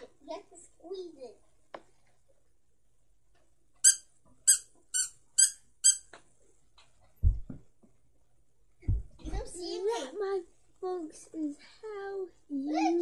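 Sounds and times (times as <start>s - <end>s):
squeaky dog toy squeaks: 3.8s - 6.1s
dull thumps: 7.2s - 8.0s, 8.8s - 9.6s.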